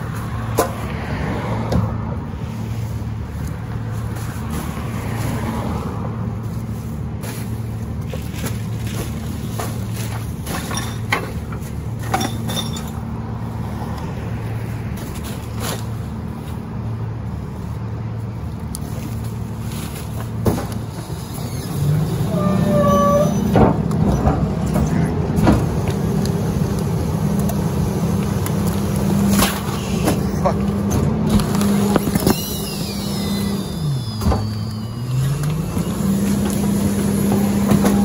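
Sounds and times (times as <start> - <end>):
diesel truck engine idling: 13.0 - 38.0
hydraulic whine: 20.5 - 38.0.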